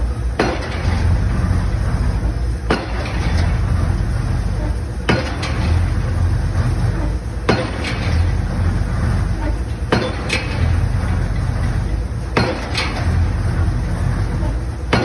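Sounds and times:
rig engine running: 0.0 - 15.0
pile-driving hammer striking pile: 5.1 - 5.8, 7.5 - 8.3, 9.9 - 10.8, 12.4 - 13.2.

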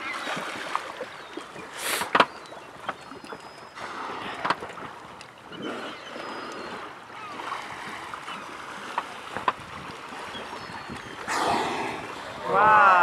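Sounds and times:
water lapping against boat: 0.0 - 13.0
wind on microphone: 9.3 - 13.0.

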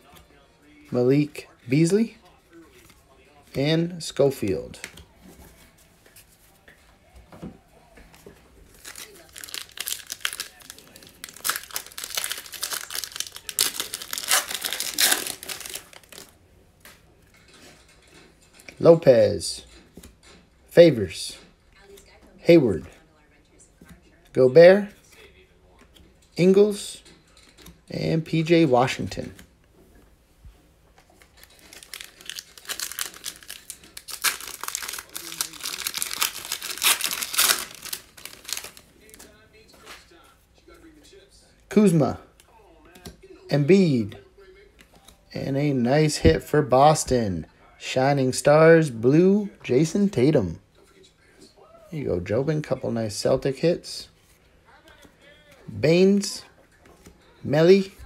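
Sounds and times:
wrapper tearing and crinkling: 8.7 - 16.4, 31.2 - 38.9.

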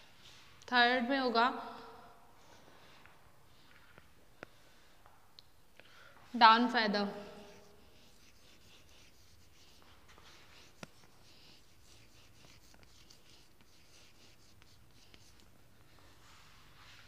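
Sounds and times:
chalk scratching on blackboard: 7.2 - 17.0
chalk tap: 7.4 - 15.5.

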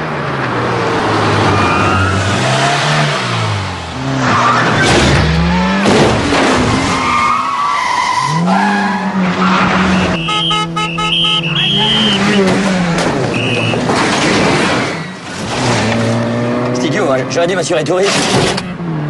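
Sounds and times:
tyres squealing: 6.9 - 12.6, 13.3 - 13.9
car engine revving: 8.1 - 19.0.

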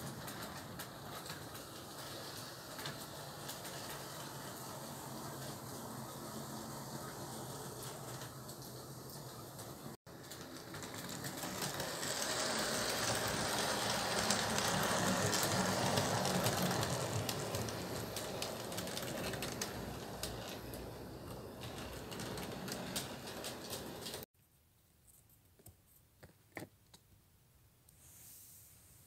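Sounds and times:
model train rattling on track: 10.2 - 24.2.

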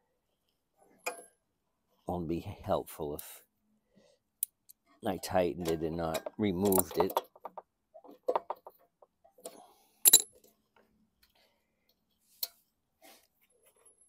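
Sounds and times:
hand tools clinking: 5.6 - 7.6, 10.1 - 10.3
wrench clinking on concrete: 6.1 - 7.7, 10.1 - 10.4.

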